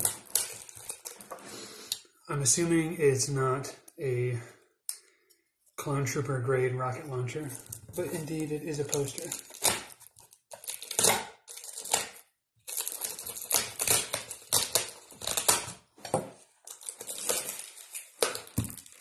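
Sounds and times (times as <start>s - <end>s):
package wrapping tearing and crinkling: 0.0s - 1.4s, 7.5s - 15.9s, 16.5s - 19.0s.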